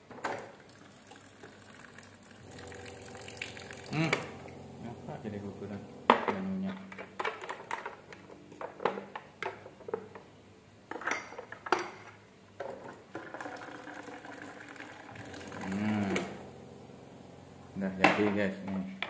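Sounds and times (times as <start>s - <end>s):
water pouring into glass mug: 0.6s - 4.6s, 13.2s - 16.4s.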